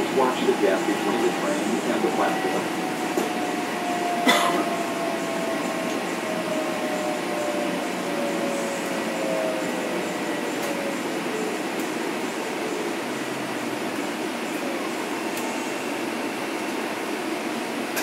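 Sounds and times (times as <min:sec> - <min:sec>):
electric train motor whine: 0:00.0 - 0:17.8
train rolling noise: 0:00.0 - 0:18.0.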